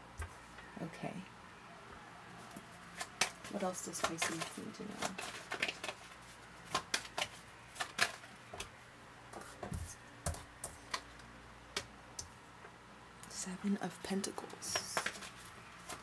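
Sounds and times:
cards being shuffled: 0:02.5 - 0:08.7, 0:14.6 - 0:16.0.

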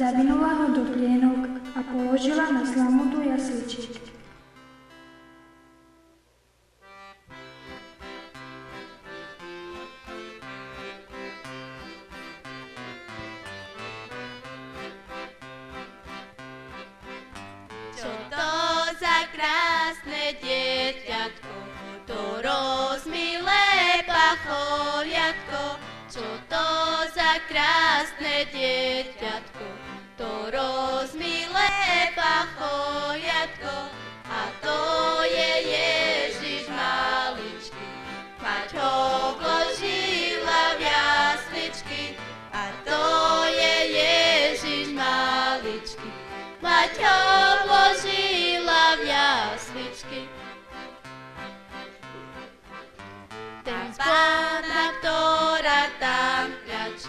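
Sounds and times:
acoustic guitar: 0:00.0 - 0:57.0
young voices singing: 0:18.0 - 0:50.4, 0:53.7 - 0:57.0.

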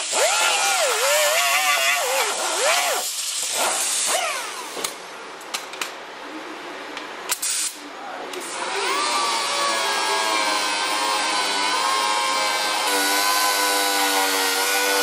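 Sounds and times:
pneumatic grinder whining: 0:00.0 - 0:04.9, 0:08.4 - 0:15.0
air hissing: 0:02.0 - 0:04.2, 0:07.3 - 0:07.8.

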